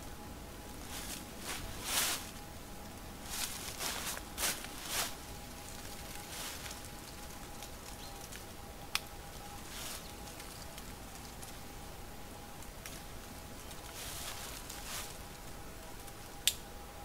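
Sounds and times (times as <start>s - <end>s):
quiet outdoor ambience: 0.0s - 17.0s
fir branches rustling: 0.6s - 16.6s.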